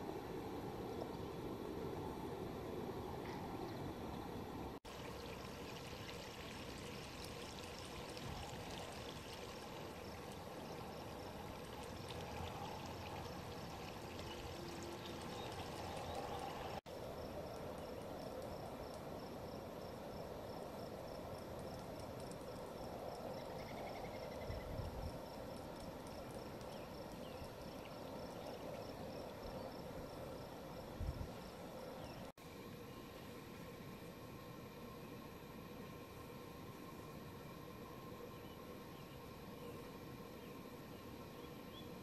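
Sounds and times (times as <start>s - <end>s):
river water flowing and lapping: 4.7s - 17.6s.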